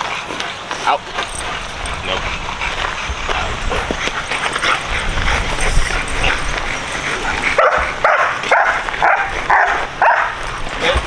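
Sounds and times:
dog barking: 7.5 - 10.4.

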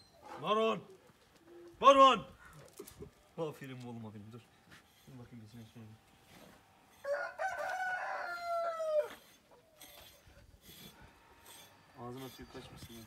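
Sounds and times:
rooster crowing: 7.0 - 9.4.

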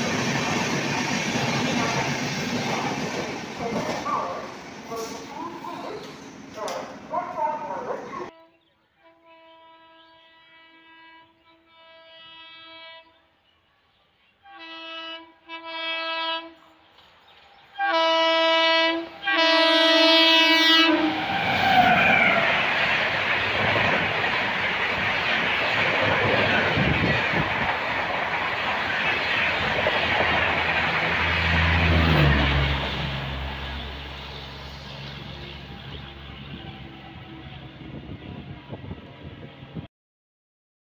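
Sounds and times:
train rushing past on rails: 0.0 - 8.3, 15.7 - 39.9
train horn blasts: 8.3 - 13.3, 14.4 - 16.8, 17.8 - 21.2, 35.5 - 39.4.

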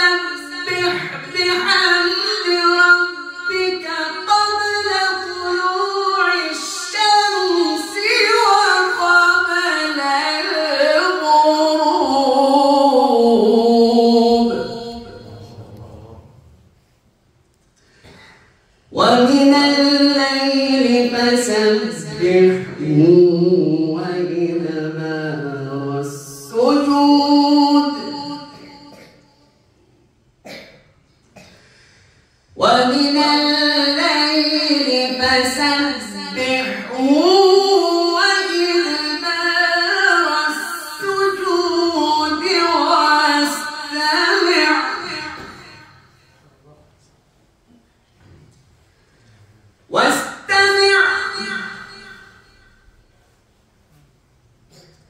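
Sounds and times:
man reciting melodically: 0.0 - 16.5, 18.9 - 28.9, 32.6 - 45.9.

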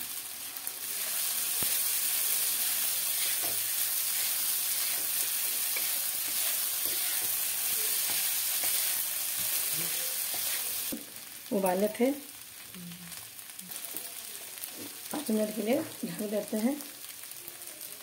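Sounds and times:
sago sizzling in hot oil: 0.0 - 18.0
wooden spatula scraping: 3.1 - 10.8.

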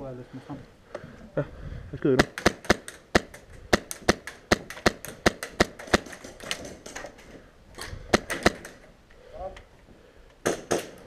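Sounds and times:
airsoft rifle shots cracking: 2.2 - 8.9, 10.4 - 11.0.

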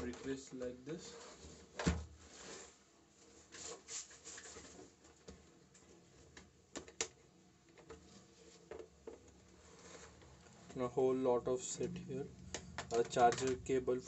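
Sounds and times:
plastic rubbing and scraping: 7.8 - 10.8, 11.8 - 13.8.

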